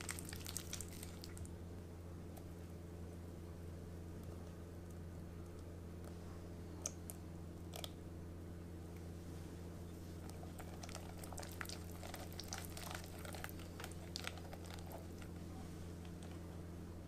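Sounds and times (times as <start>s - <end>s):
steady low hum: 0.0s - 17.0s
whisk stirring wet mixture: 10.2s - 15.4s.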